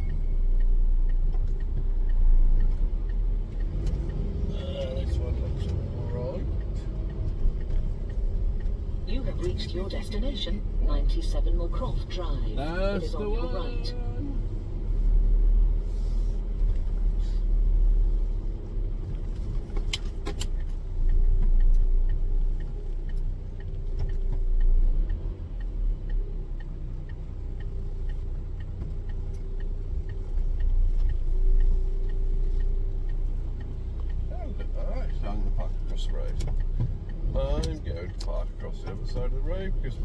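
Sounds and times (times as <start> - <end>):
diesel truck engine rumbling: 0.0 - 40.0
light regular ticking: 0.0 - 40.0
sharp clicks: 18.8 - 34.2.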